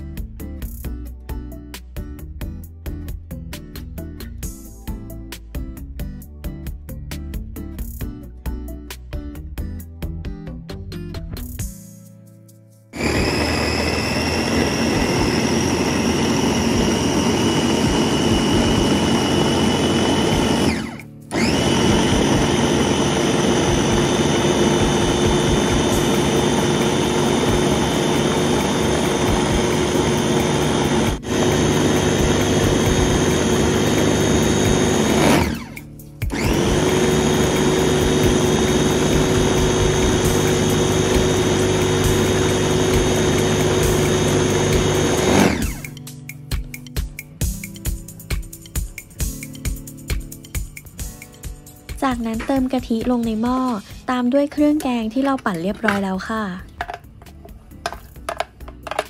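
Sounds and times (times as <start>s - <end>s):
food chopper motor whining: 13.0s - 46.0s.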